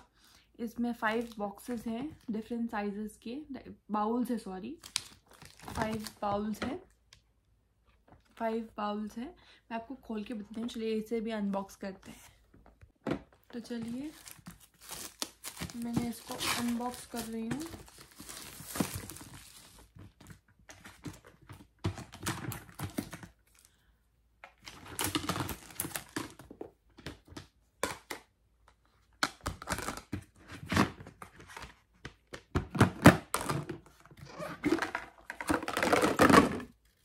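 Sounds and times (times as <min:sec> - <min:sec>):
packaging rustling and tearing: 0:04.8 - 0:06.2, 0:13.8 - 0:23.7, 0:24.6 - 0:26.4, 0:29.4 - 0:31.6.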